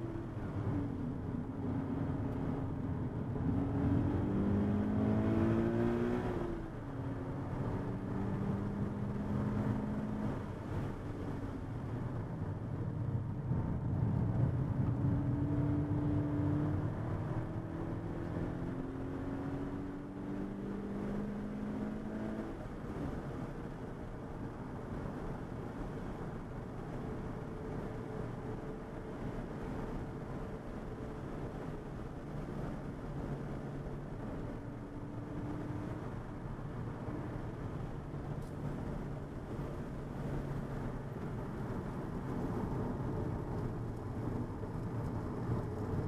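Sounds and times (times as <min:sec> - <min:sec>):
car engine accelerating: 0:00.0 - 0:11.4, 0:13.6 - 0:23.2, 0:31.2 - 0:46.0.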